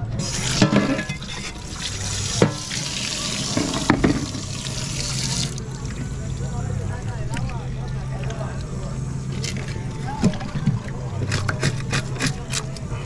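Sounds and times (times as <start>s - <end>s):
water running and splashing: 0.2s - 6.2s.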